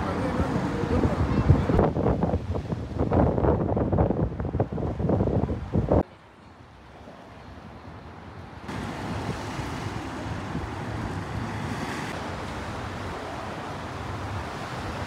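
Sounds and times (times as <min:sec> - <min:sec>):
wind buffeting microphone: 0:00.0 - 0:06.1
sea waves rushing: 0:00.0 - 0:15.0.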